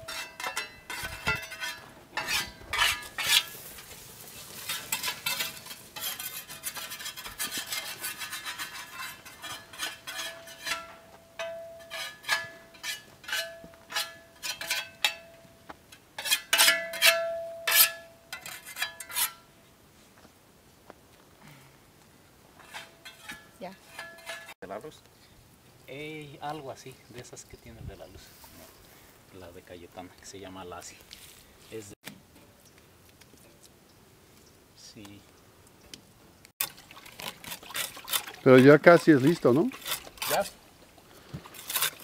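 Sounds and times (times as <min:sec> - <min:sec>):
metal clinks and clanks: 0:00.0 - 0:03.5, 0:04.7 - 0:15.4.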